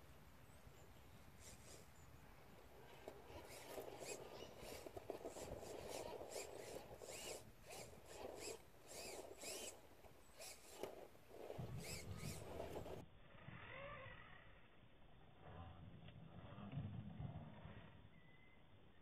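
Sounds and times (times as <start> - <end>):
rc car motor whining: 1.3 - 14.8.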